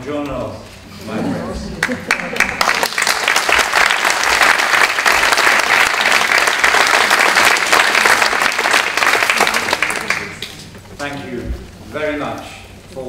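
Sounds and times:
audience applauding: 0:01.8 - 0:10.7.

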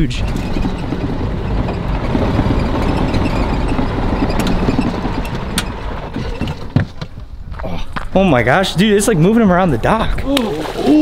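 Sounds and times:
golf cart motor running: 0:00.0 - 0:07.5
rumble of the ride: 0:00.0 - 0:10.3
sharp clicks and knocks: 0:00.2 - 0:07.3.

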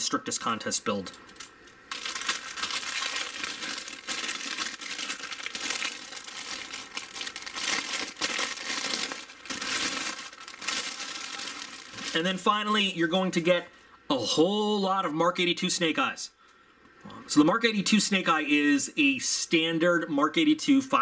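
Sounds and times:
plastic bags crinkling: 0:01.0 - 0:13.7.

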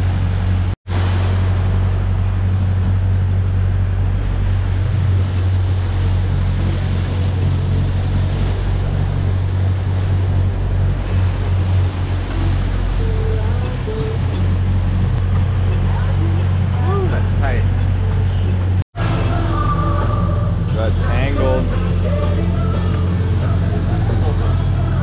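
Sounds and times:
boat engine humming: 0:00.0 - 0:25.0
propeller wash rushing: 0:00.0 - 0:25.0
wind on microphone: 0:00.0 - 0:25.0.

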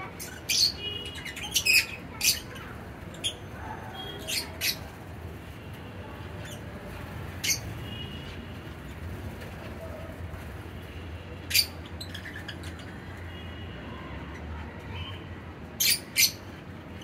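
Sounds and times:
lovebirds squawking: 0:00.0 - 0:05.0.

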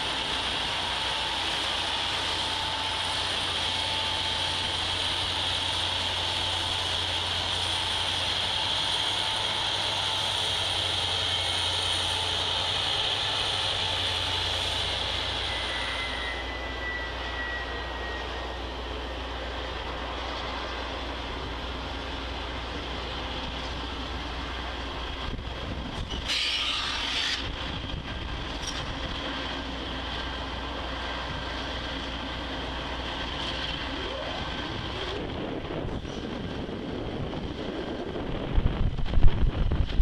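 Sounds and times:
train wheels rushing on rails: 0:00.0 - 0:40.0.

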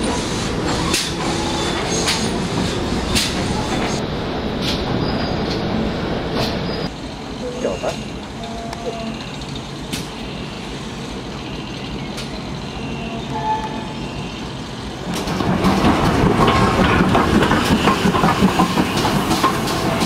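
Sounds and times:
train wheels clicking over rail joints: 0:00.0 - 0:04.0, 0:15.0 - 0:20.0.

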